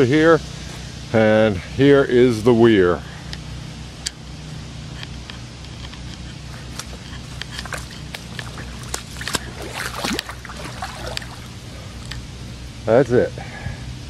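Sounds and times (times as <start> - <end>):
water sloshing and splashing: 6.2 - 12.4.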